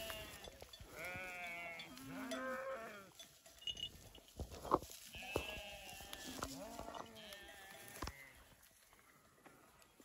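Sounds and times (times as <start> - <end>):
sheep bleating: 0.0 - 3.1, 5.1 - 8.4.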